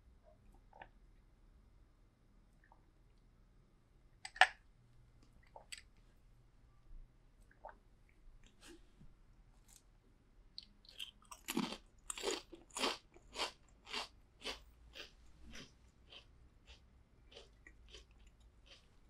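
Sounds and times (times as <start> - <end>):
potato chips crunching: 10.8 - 18.9.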